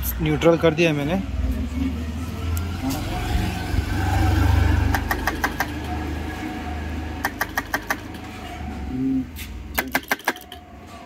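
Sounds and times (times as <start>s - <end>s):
sharp clicks: 4.9s - 5.9s, 7.2s - 8.2s, 9.7s - 10.6s.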